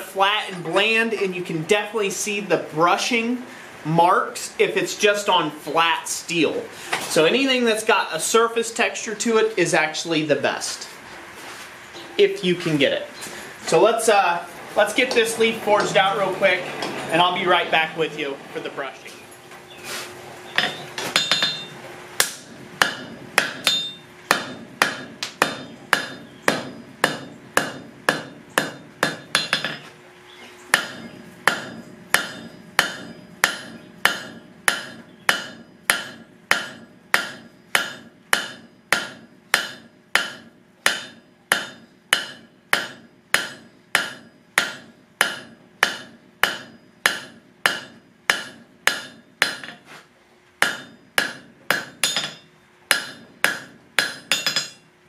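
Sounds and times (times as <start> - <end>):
steady hum: 0.0 - 55.0
hammer striking steel on anvil: 20.6 - 29.9, 30.7 - 49.8, 50.6 - 54.9.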